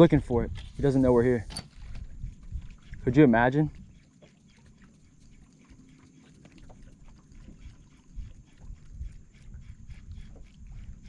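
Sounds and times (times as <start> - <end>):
light wind on microphone: 0.0 - 4.0, 6.7 - 11.0.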